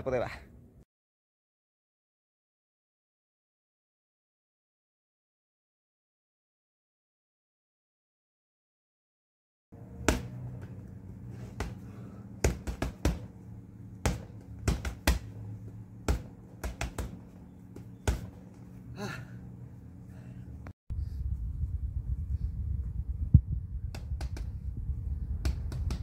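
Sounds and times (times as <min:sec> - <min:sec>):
gloves punching heavy bag: 0:10.0 - 0:19.2.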